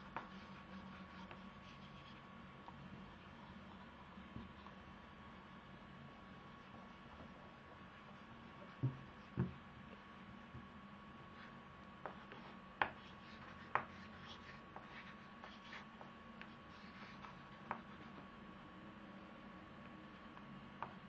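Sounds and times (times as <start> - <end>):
pencil scratching on paper: 0.0 - 2.3, 11.4 - 18.3
faint electrical hum: 0.0 - 21.0.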